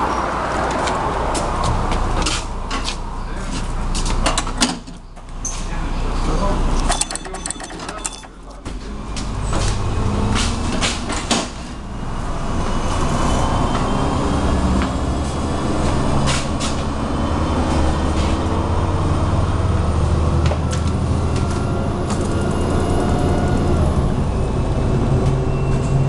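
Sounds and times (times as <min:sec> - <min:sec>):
road noise: 0:00.0 - 0:26.0
bus diesel engine: 0:08.4 - 0:26.0.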